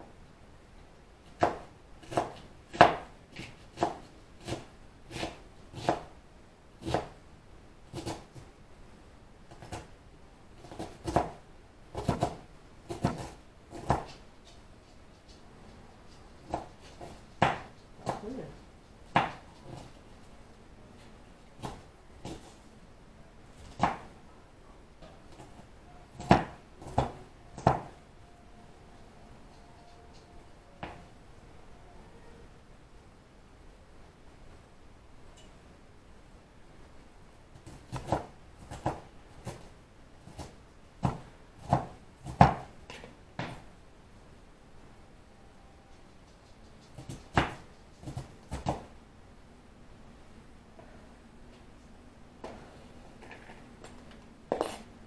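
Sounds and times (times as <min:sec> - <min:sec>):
knife chopping vegetables: 0:01.3 - 0:06.1, 0:06.8 - 0:07.2, 0:07.9 - 0:08.5, 0:10.6 - 0:14.2, 0:19.1 - 0:20.0, 0:21.6 - 0:22.6, 0:25.3 - 0:28.0, 0:37.6 - 0:43.6, 0:46.9 - 0:48.9
knife chopping on cutting board: 0:01.4 - 0:06.1, 0:06.8 - 0:07.2, 0:10.6 - 0:11.4, 0:12.0 - 0:14.1.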